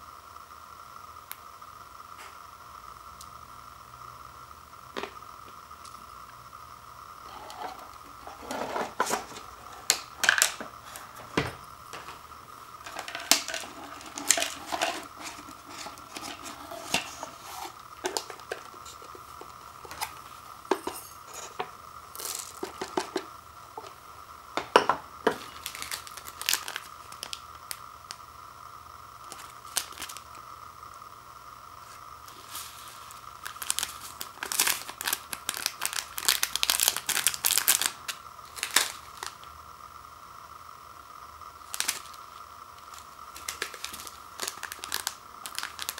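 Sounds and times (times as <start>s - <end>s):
packaging crinkling: 7.3s - 23.9s, 25.2s - 27.8s, 29.2s - 30.3s, 32.2s - 39.5s, 41.6s - 45.9s.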